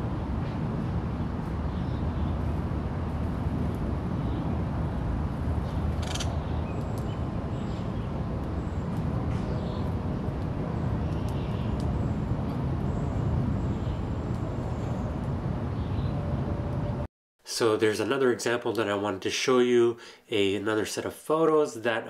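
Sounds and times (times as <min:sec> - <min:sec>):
steady low rumble: 0:00.0 - 0:17.1.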